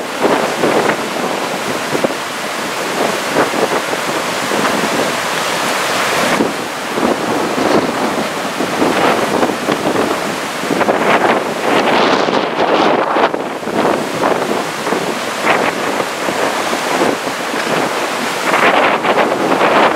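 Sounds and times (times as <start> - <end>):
surf breaking: 0.0 - 19.9
wind buffeting microphone: 0.0 - 19.9.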